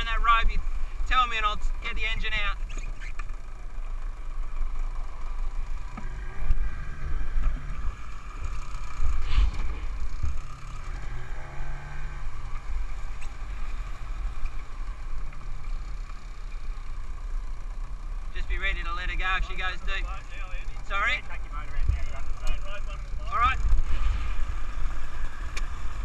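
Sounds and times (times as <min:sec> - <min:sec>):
boat engine hum: 0:00.0 - 0:26.0
wind rumbling on microphone: 0:05.3 - 0:15.7, 0:23.6 - 0:26.0.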